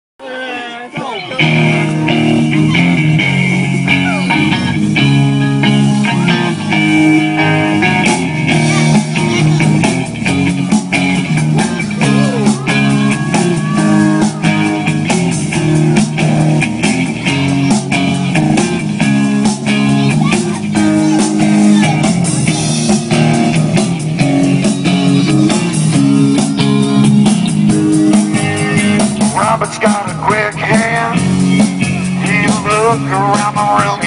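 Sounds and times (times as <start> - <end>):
electric guitars: 0.3 - 34.0
bass guitar: 0.4 - 34.0
drum kit: 1.4 - 34.0.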